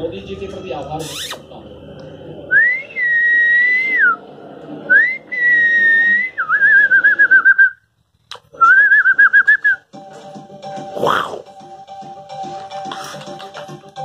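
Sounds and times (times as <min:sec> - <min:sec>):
person whistling: 0:04.9 - 0:07.8, 0:08.6 - 0:09.9.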